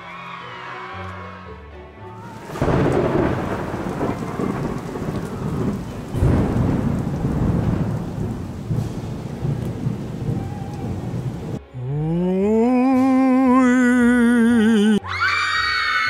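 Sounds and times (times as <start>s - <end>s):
steady rain: 2.2s - 15.0s
thunderclap: 2.4s - 11.6s.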